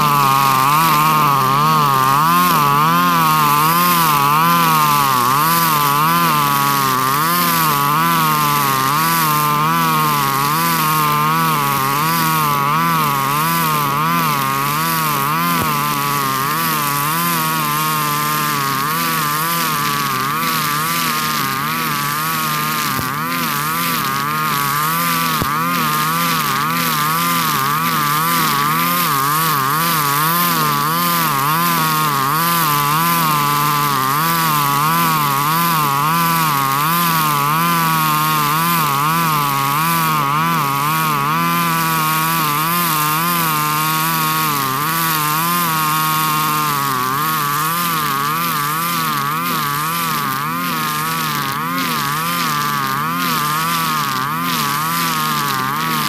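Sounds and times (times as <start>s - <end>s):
brush cutter engine at high revs: 0.0s - 56.0s
nylon line cutting grass: 0.0s - 56.0s.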